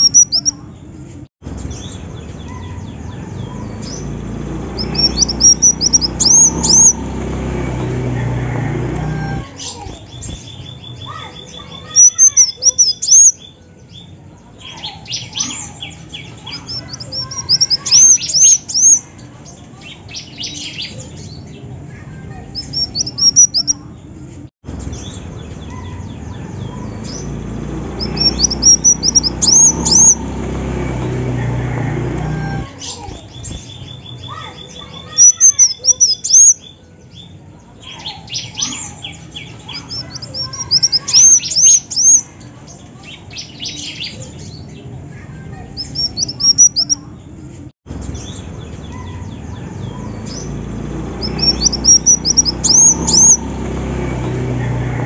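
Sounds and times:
rapid ticking bird notes: 0.0 - 0.6, 1.7 - 9.5, 22.6 - 23.8, 24.9 - 36.6, 38.2 - 42.3, 45.8 - 47.0, 48.1 - 54.8
sunbird chirping: 0.0 - 0.9, 1.5 - 7.8, 9.4 - 21.6, 22.6 - 23.9, 24.8 - 31.2, 32.6 - 44.8, 45.8 - 47.1, 48.0 - 54.0.

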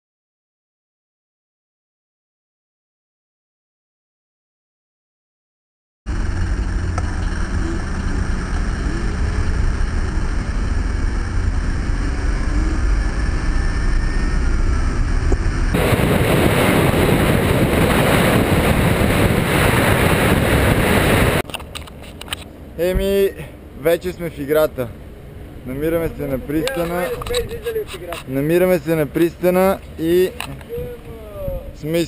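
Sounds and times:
car rumble and traffic: 6.1 - 32.0
wind buffeting microphone: 6.2 - 22.2, 25.4 - 32.0.

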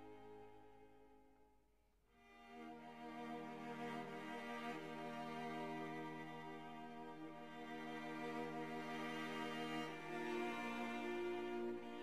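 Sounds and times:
slow bowed string chords: 2.4 - 12.0.

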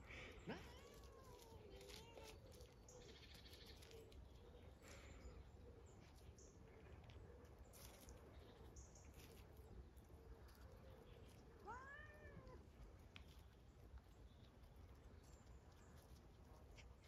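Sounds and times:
cat meowing: 11.6 - 12.6.

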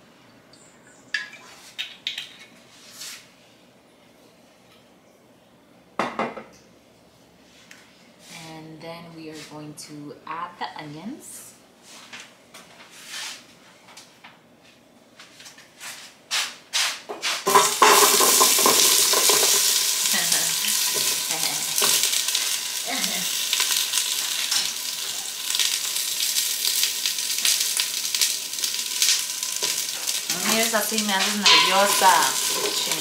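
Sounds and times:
onions sizzling in oil: 17.4 - 33.0.

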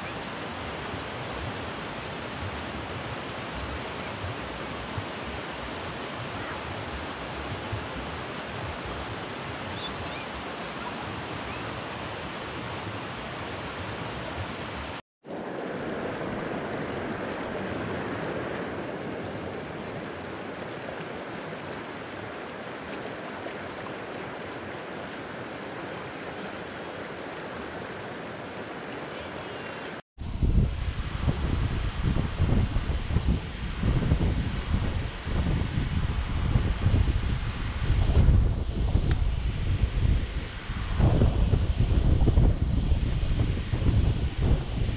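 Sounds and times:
running water rushing: 0.0 - 30.0.

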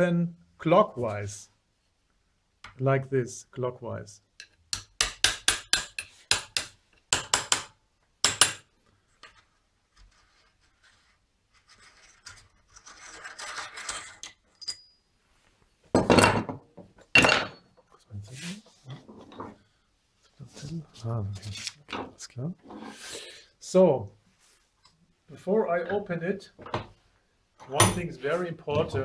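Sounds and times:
metal tool scraping: 11.7 - 15.0.

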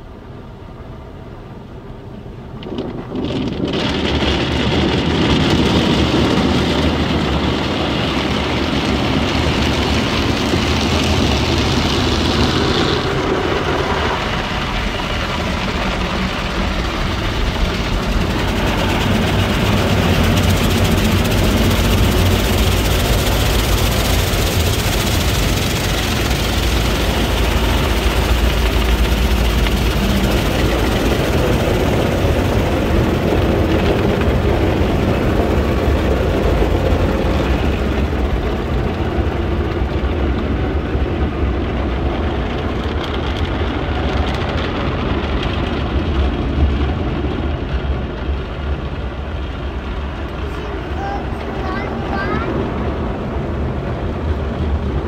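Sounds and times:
low machinery rumble: 0.0 - 55.0
water spraying over car: 0.3 - 55.0.

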